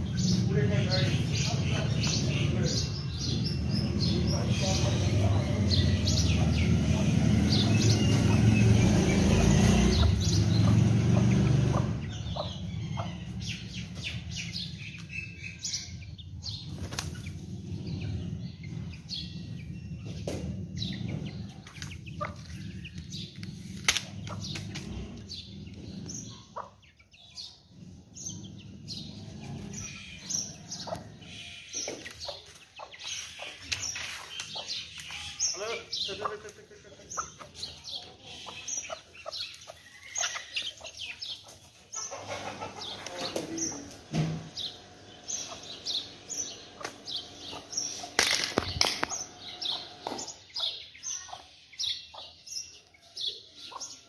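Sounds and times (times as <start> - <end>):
chickens chirping and clucking: 0.0 - 54.0
chickens scratching ground: 16.5 - 26.7, 27.8 - 50.7.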